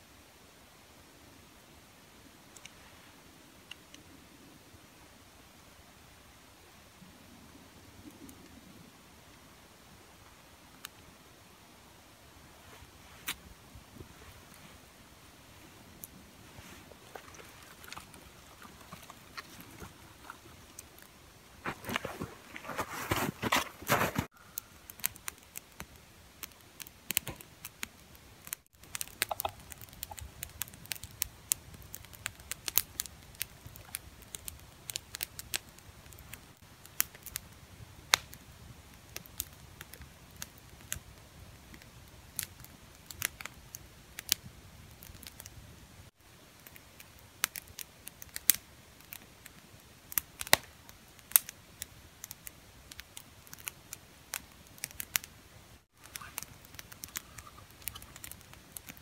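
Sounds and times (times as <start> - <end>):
campfire crackling and popping: 3.6 - 4.1, 7.8 - 8.6, 9.3 - 11.1, 12.7 - 59.0.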